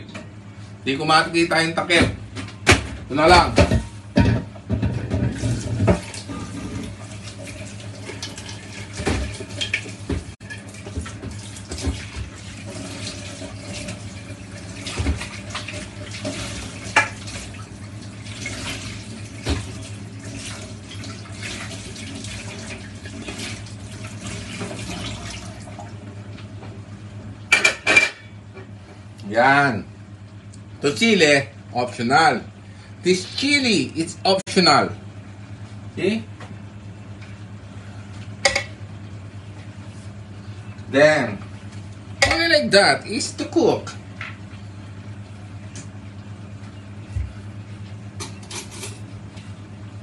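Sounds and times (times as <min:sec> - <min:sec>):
steady low hum: 0:00.0 - 0:50.0
tap water splashing into sink: 0:05.1 - 0:14.0, 0:14.7 - 0:17.6, 0:18.3 - 0:25.9.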